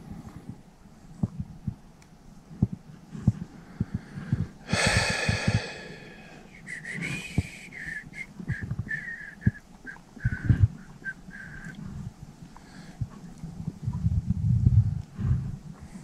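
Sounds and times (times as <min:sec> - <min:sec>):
loud hissing rush: 0:04.7 - 0:06.5.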